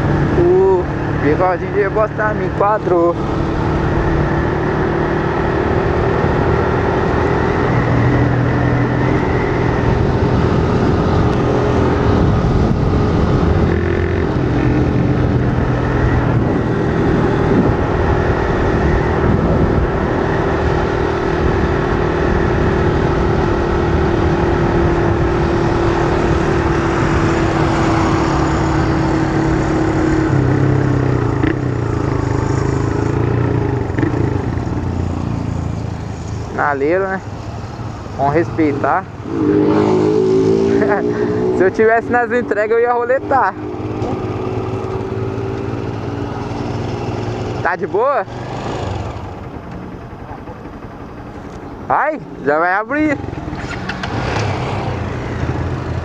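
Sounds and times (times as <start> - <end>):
motorcycle engine with loud exhaust: 0.0 - 56.0
wind rush: 5.4 - 36.6.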